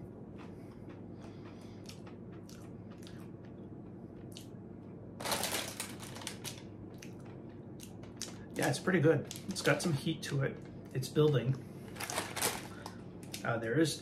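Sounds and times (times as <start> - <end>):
foil snack bag crinkling: 5.2 - 6.7, 11.2 - 14.0.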